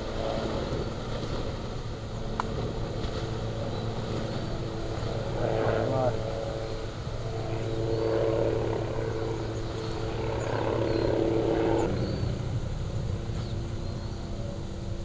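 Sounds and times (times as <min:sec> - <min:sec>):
lava fountain roaring: 0:00.0 - 0:07.8.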